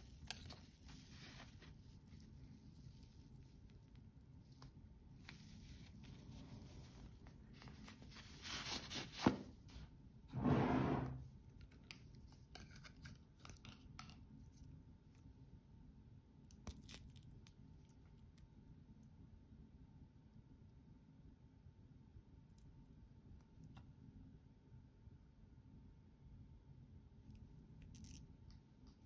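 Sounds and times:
wristwatch rustling scrape: 0.5 - 3.1, 5.2 - 9.3.

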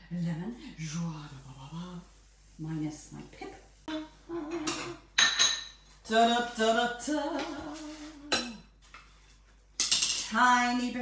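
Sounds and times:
crockery clinks: 4.7 - 5.8
woman singing wordless tune: 6.0 - 8.6.

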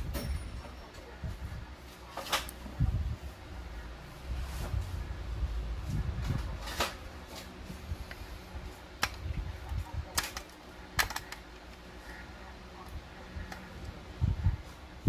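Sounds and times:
low rumble of handling: 0.0 - 15.0
clicks and taps of toy parts: 10.1 - 11.8.

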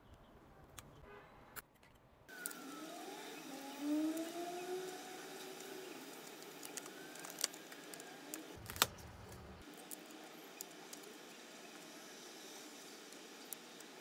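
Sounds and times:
scissors snipping plastic film: 6.2 - 10.0.

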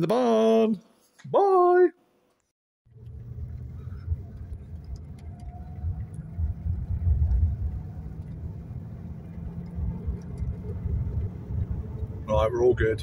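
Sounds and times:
car engine and road noise: 2.9 - 13.0.

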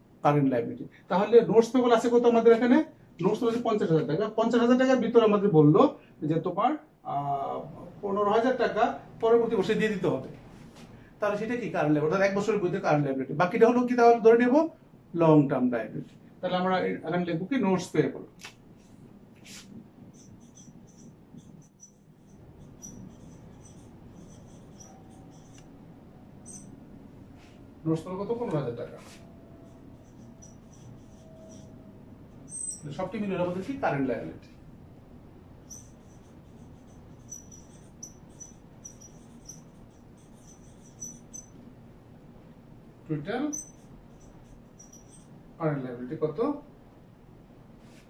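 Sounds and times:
whiteboard marker squeaking: 19.5 - 26.8, 28.3 - 33.8, 35.6 - 41.6, 43.4 - 45.3.

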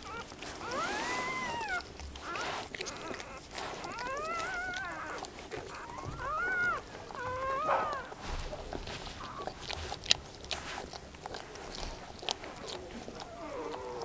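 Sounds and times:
puppy crying in squeals: 0.0 - 8.2, 13.2 - 14.0
wet licking and rustling: 0.0 - 14.0.

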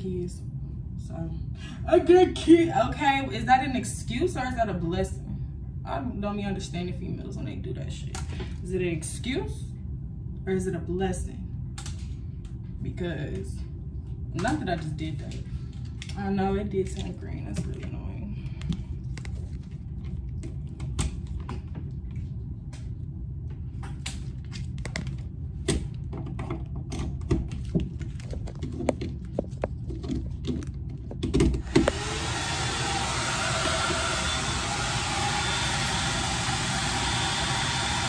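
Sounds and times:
hair dryer blowing: 31.6 - 38.0.

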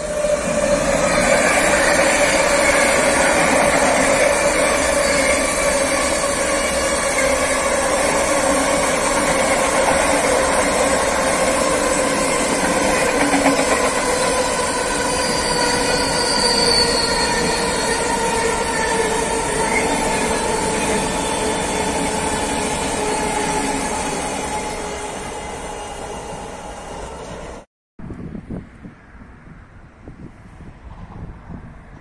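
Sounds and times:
wheels squealing: 0.0 - 27.6
train wheels clattering on rail: 0.8 - 24.1.

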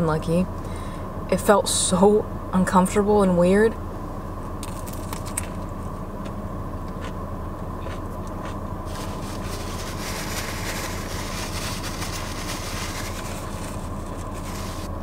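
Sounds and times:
soft chewing clicks: 7.8 - 8.6
paper napkin crinkling: 8.9 - 15.0.

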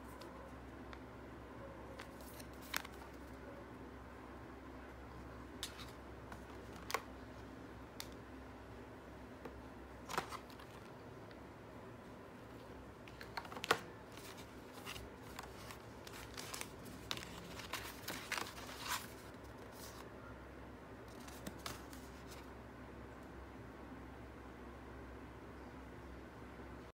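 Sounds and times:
packaging clicks and rustles: 1.9 - 3.3, 5.6 - 7.1, 10.0 - 11.0, 12.5 - 20.1, 21.1 - 22.5.

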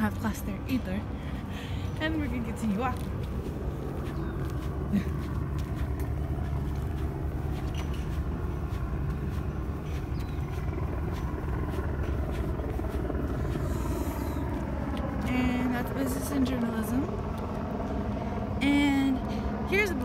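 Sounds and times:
steady low rumble: 0.0 - 20.0
faint footsteps on concrete: 1.9 - 15.3.

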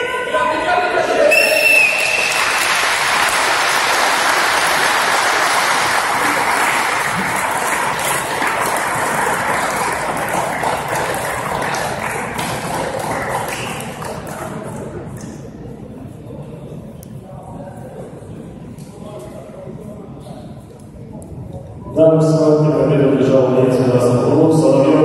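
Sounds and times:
crowd applauding and cheering: 1.3 - 14.7
single claps: 2.0 - 14.6.

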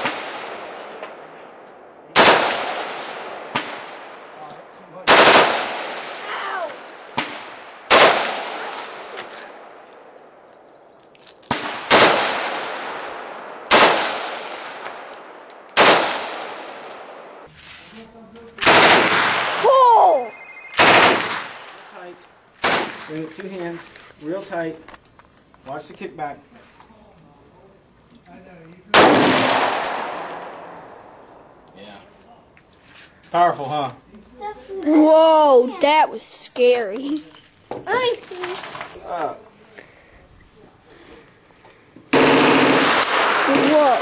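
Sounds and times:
rifle shots with echo: 0.0 - 4.4, 5.0 - 6.2, 6.8 - 9.2, 11.5 - 17.2, 18.6 - 19.7, 20.7 - 21.9, 22.6 - 23.2, 28.9 - 31.4, 42.1 - 44.0
fainter gunshot cracks: 29.0 - 30.2.

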